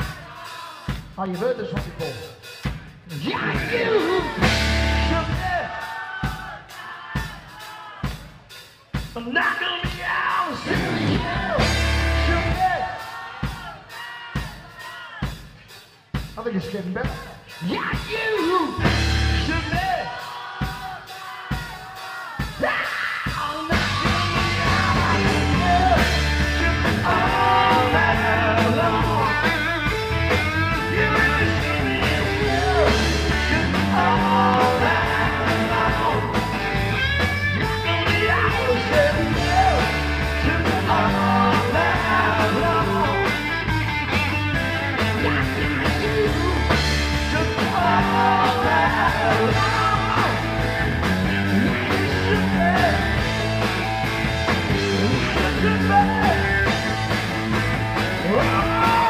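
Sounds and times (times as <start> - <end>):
drum kit: 0.0 - 59.0
bass guitar: 1.2 - 6.6, 9.0 - 13.7, 16.2 - 20.6, 22.4 - 59.0
person singing: 17.6 - 30.0, 30.7 - 37.0, 37.8 - 43.6, 45.2 - 50.7, 58.2 - 59.0
electric guitar: 23.7 - 59.0.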